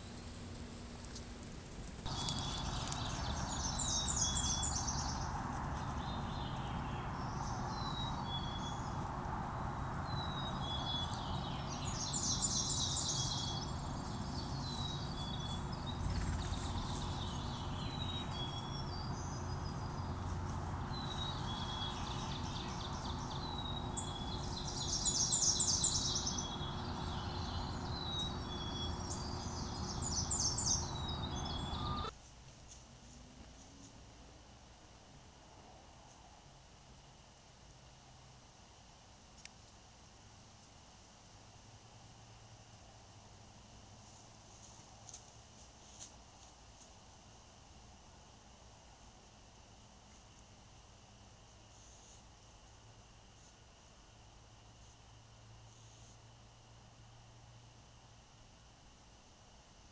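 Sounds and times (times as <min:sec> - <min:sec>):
songbirds singing: 0:00.0 - 0:32.2
steady hiss: 0:32.1 - 0:59.9.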